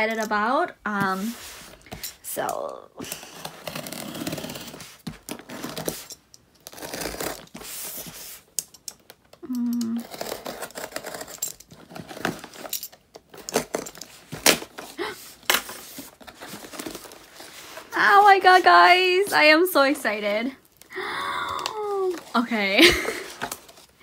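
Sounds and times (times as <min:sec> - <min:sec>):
packaging tearing and crinkling: 0:03.2 - 0:08.1, 0:09.9 - 0:17.9.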